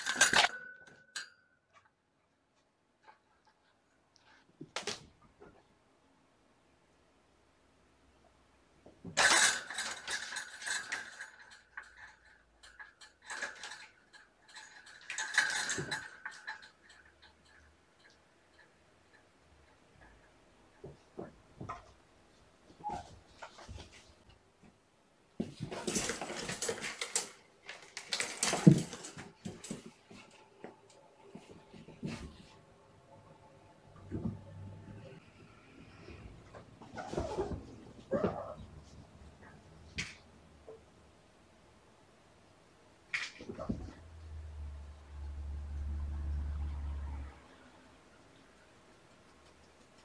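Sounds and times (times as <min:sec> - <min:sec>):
kittens scampering and scratching: 0:25.5 - 0:32.8, 0:34.0 - 0:40.0.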